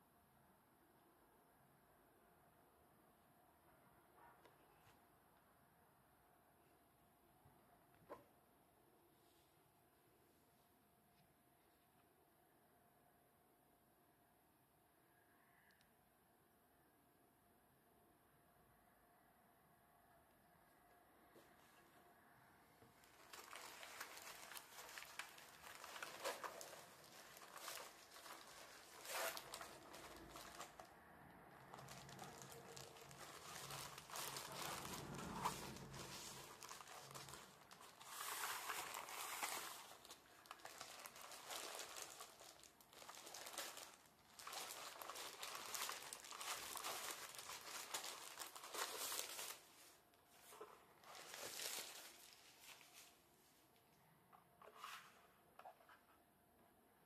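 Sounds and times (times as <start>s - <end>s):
plastic sleeve crinkling: 23.0s - 30.9s, 31.5s - 53.2s
low rubbing sound: 31.6s - 38.8s.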